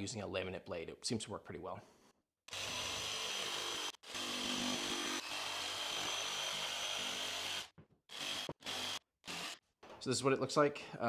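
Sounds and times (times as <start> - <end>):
jigsaw cutting with high whine: 2.5 - 9.6.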